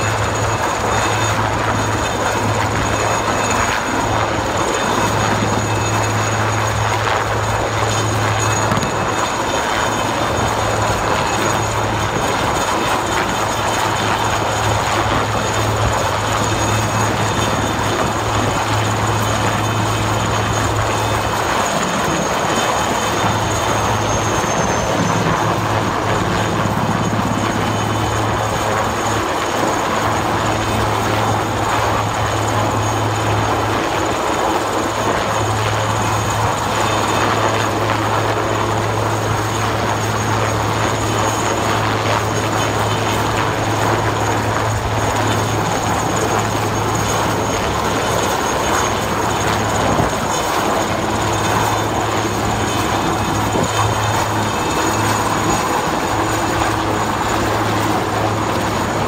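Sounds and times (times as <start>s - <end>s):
helicopter rotor and turbine noise: 0.0s - 59.0s
thin high whine: 14.0s - 28.0s.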